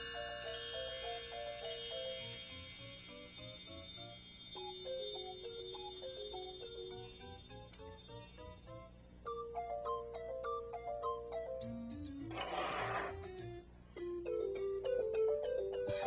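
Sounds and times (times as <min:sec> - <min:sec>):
tinkling bells: 0:00.0 - 0:09.3.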